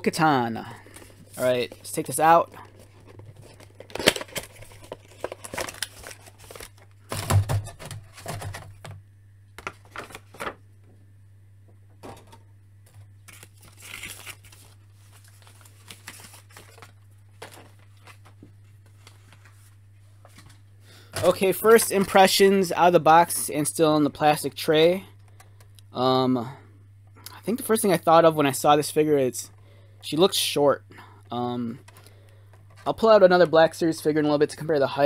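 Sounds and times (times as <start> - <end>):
cardboard and plastic rustling: 0.8 - 9.0, 9.6 - 10.6, 12.0 - 22.2.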